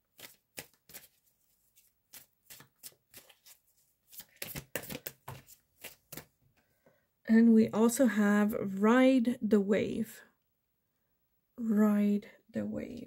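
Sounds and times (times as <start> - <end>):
cards slapping and sliding: 0.0 - 6.4.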